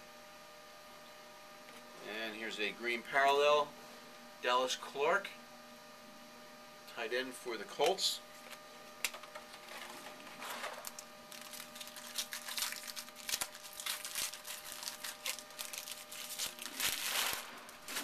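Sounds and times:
electrical hum: 0.0s - 18.0s
cards and wrappers rustling: 8.4s - 18.0s.

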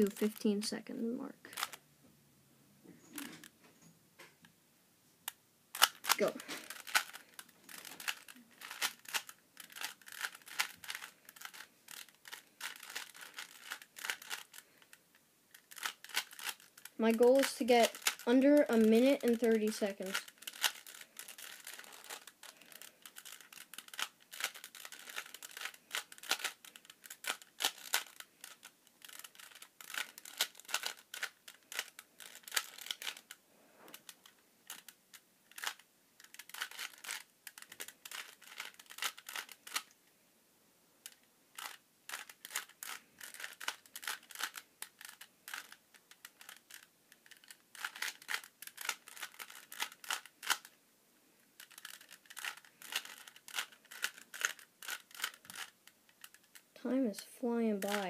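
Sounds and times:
puzzle cube plastic clicking: 1.5s - 1.8s, 5.3s - 40.0s, 41.0s - 50.8s, 51.5s - 56.8s, 57.8s - 58.0s.

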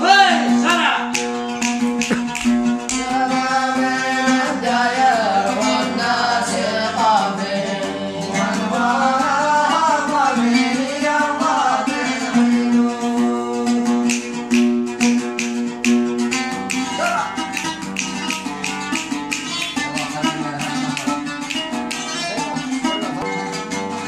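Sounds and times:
plucked string instrument: 0.0s - 24.0s
man singing folk melody: 2.0s - 14.5s, 19.7s - 21.5s.

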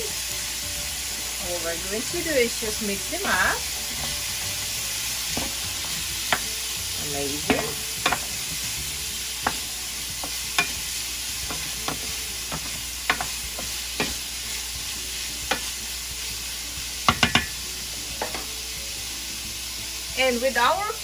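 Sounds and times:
food sizzling in oil: 0.0s - 21.0s
wooden spoon knocking pan: 5.3s - 6.5s, 7.4s - 8.4s, 9.4s - 14.2s, 17.1s - 17.6s.

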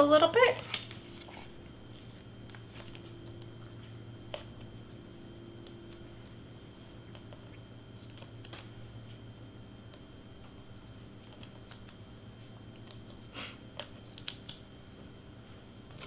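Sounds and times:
steady low hum: 0.0s - 16.0s
paper and tape clicks and rustles: 11.2s - 12.0s, 13.8s - 14.6s.

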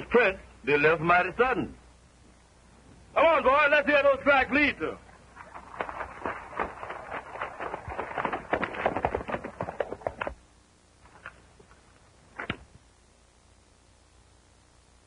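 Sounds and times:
horse hooves clattering: 5.3s - 10.4s.

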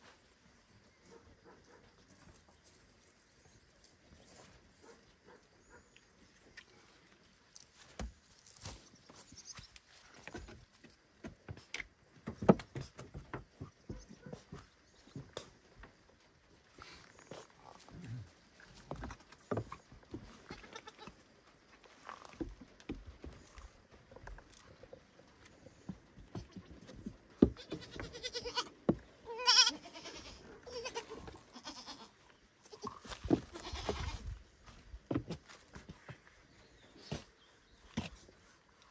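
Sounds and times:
goat hooves on grass and wood: 7.2s - 30.1s, 30.7s - 38.9s
baby goat bleating: 20.5s - 21.1s, 27.6s - 28.7s, 29.3s - 32.1s, 32.7s - 34.2s.

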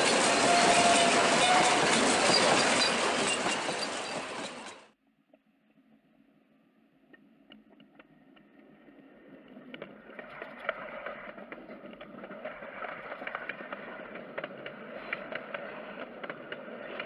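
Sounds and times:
train wheels clattering on rails: 0.0s - 5.0s, 9.7s - 17.0s
faint clicks from rails: 7.1s - 17.0s.

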